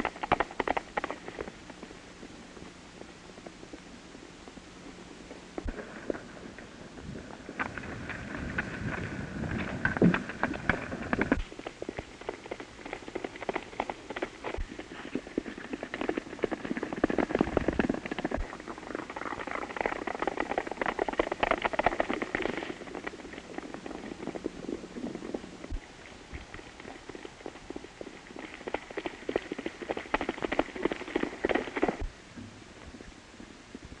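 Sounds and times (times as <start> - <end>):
horses galloping on dirt: 0.0 - 4.6, 5.2 - 32.2.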